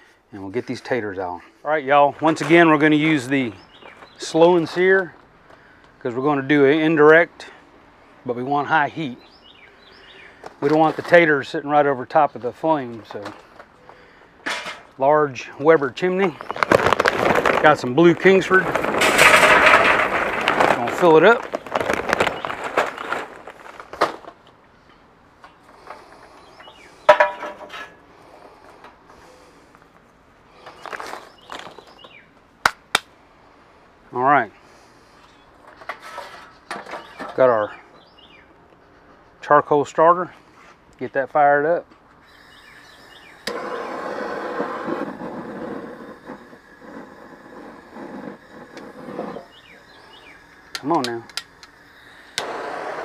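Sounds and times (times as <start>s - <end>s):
charcoal clattering into metal chimney: 14.4s - 15.0s, 16.3s - 24.4s, 27.1s - 28.0s
torch flame hissing: 42.3s - 53.0s
gas torch ignition click: 50.7s - 52.9s.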